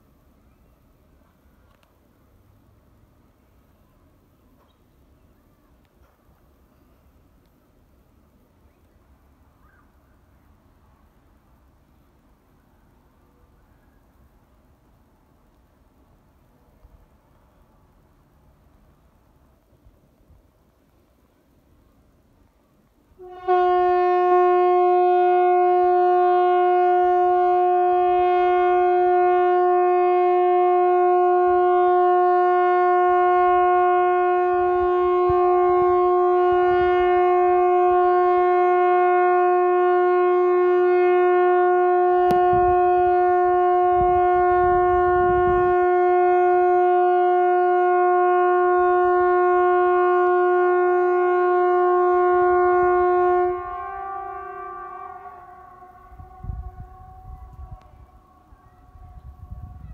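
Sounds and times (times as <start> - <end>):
warning siren steady tone: 23.2 - 59.9.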